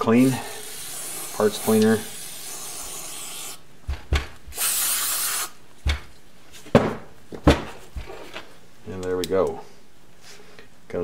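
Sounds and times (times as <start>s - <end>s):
spray can hissing: 0.2s - 3.6s, 4.5s - 5.6s.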